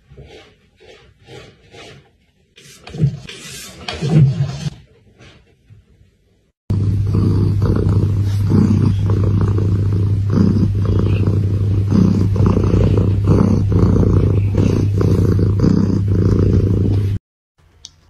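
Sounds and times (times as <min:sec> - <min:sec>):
cat purring loudly: 0:06.7 - 0:17.2.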